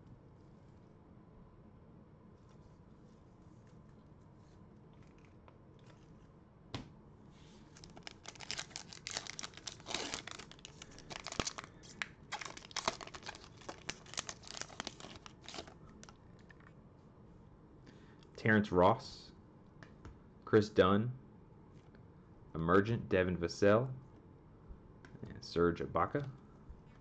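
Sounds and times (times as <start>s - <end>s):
foil wrapper tearing and crinkling: 7.7s - 16.1s.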